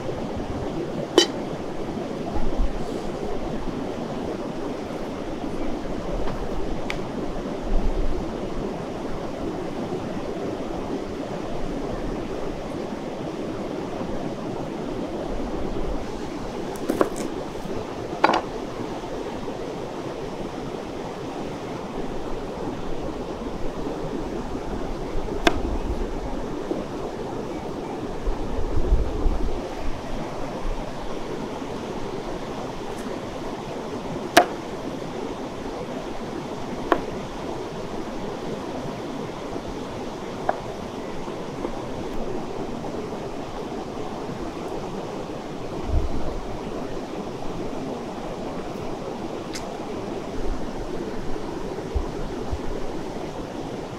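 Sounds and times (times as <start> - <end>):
mountain river rushing: 0.0 - 53.9
wind rumbling on microphone: 0.0 - 53.9
knife tapping cutting board: 34.4 - 34.6.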